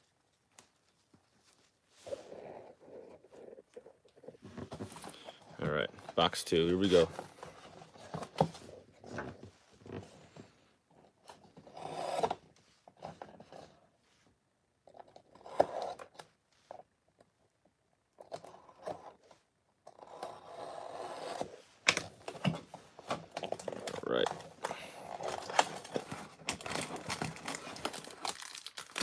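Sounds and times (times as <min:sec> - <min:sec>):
cardboard boxes being handled: 0:00.6 - 0:13.8, 0:21.3 - 0:28.4
blade slitting plastic wrap: 0:25.3 - 0:29.0.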